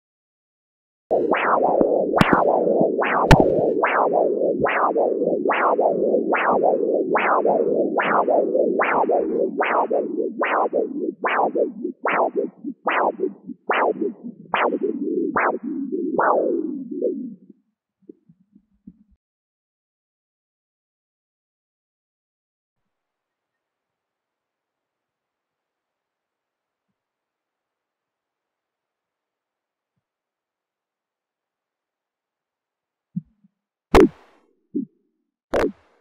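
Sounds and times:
pulsing doppler blood flow whoosh: 1.1 - 17.1
sharp clicks: 33.9 - 34.3.

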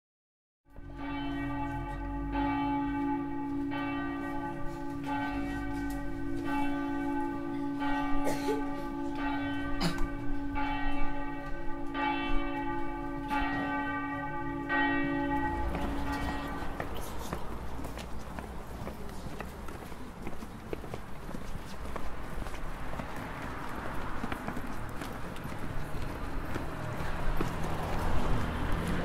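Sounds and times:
church bell tolling: 0.7 - 17.6.

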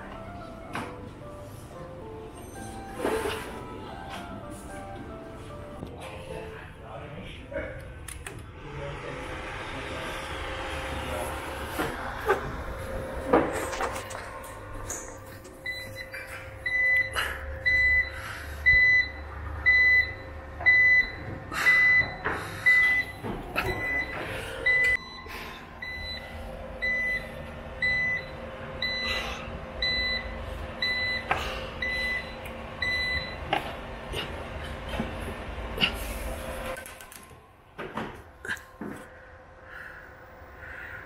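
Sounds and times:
low hum: 5.8 - 41.0
alarm buzzer beeping: 15.6 - 33.4.

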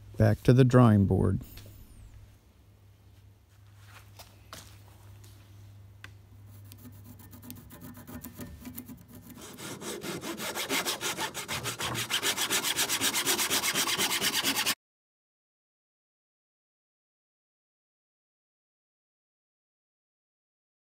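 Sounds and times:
handsaw cutting wood: 6.6 - 14.8.

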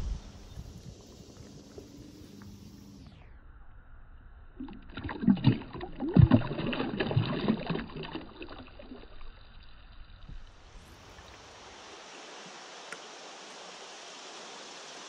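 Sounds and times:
steady hiss: 10.4 - 15.0.

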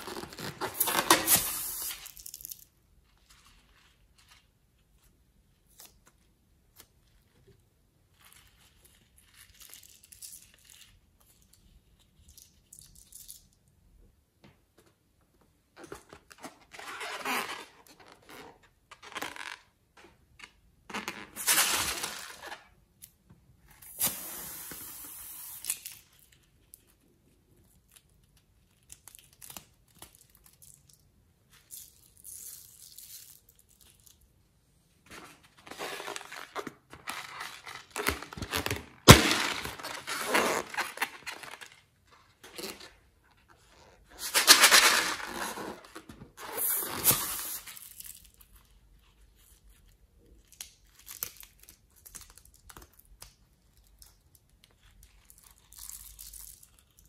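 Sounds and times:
latex crinkling and tearing: 0.0 - 2.6.

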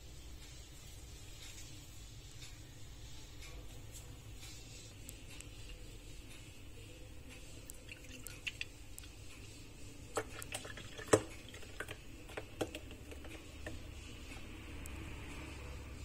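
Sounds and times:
milkshake pouring into glass: 7.7 - 8.7, 10.1 - 12.9.

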